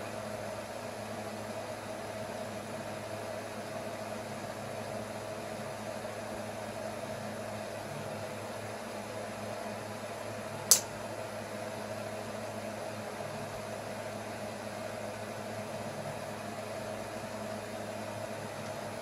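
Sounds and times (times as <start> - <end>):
low room hum and hiss: 0.0 - 19.0
sharp click: 10.7 - 10.9.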